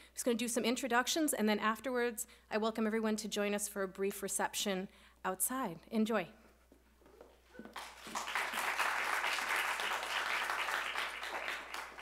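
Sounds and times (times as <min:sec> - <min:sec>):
audience applauding: 0:07.6 - 0:12.0.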